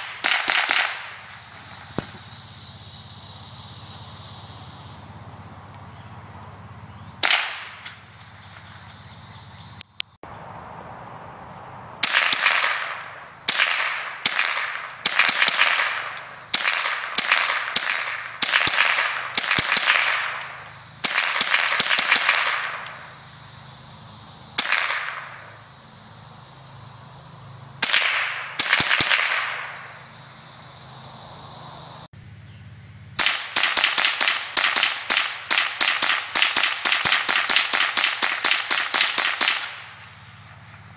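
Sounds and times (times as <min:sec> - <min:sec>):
gunshots with echo: 0:00.0 - 0:02.2, 0:07.2 - 0:07.9, 0:12.0 - 0:23.0, 0:24.6 - 0:25.5, 0:27.8 - 0:29.8.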